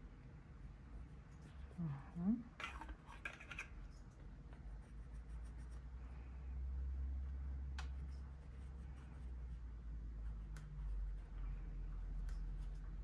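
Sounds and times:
pencil scratching on paper: 4.7 - 6.0, 8.0 - 13.0.

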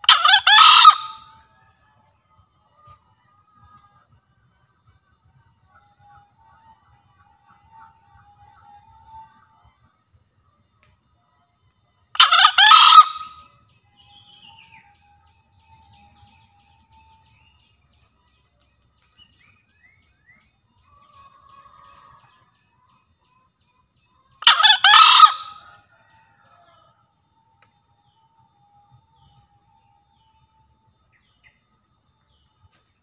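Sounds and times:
junglefowl crowing: 0.0 - 1.5, 12.2 - 13.4, 24.4 - 26.8.

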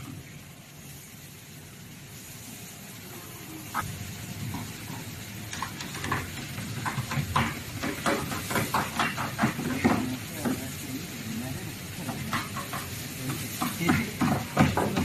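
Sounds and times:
hammer tapping on wood: 5.5 - 10.6, 12.1 - 15.0.

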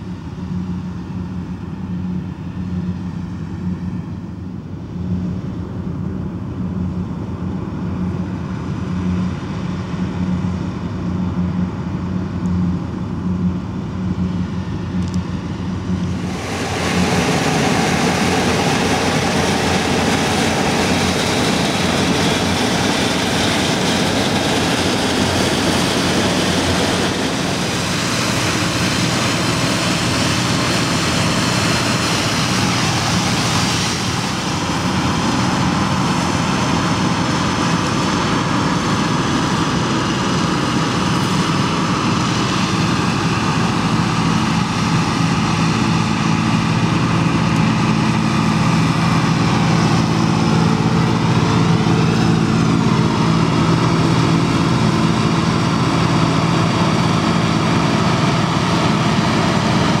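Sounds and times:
combine harvester engine drone: 0.0 - 60.0.

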